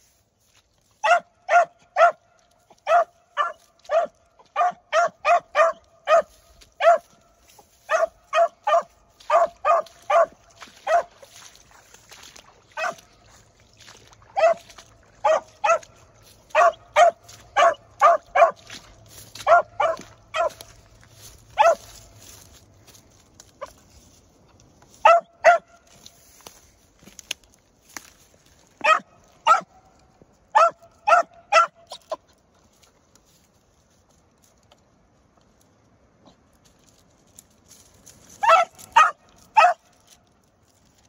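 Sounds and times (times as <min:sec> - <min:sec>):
dog barking: 0:01.0 - 0:02.2, 0:02.8 - 0:07.2, 0:07.9 - 0:11.2, 0:12.8 - 0:13.1, 0:14.4 - 0:18.8, 0:19.4 - 0:20.7, 0:21.6 - 0:22.0, 0:25.0 - 0:25.8, 0:28.8 - 0:29.7, 0:30.6 - 0:31.9, 0:38.4 - 0:39.9.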